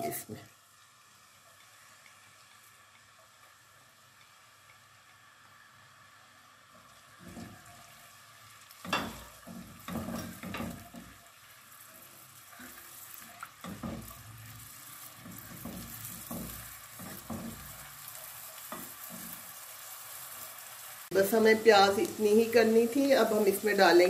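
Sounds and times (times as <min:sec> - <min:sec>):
onions sizzling in hot oil: 0:00.0 - 0:24.0
spatula scraping a pot: 0:12.1 - 0:19.4.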